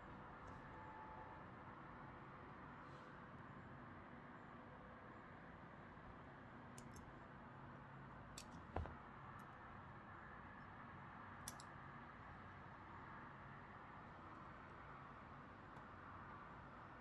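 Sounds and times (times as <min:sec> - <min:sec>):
soft thump: 0:08.7 - 0:09.0.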